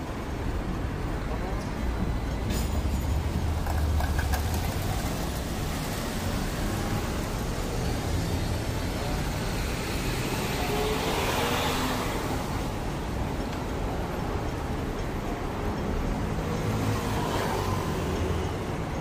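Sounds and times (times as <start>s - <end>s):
tram rumbling on rails: 0.0s - 19.0s.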